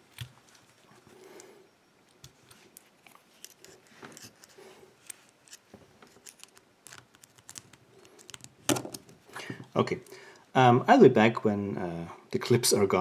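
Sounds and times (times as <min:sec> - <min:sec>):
small metal clicks and scrapes: 0:02.4 - 0:09.0.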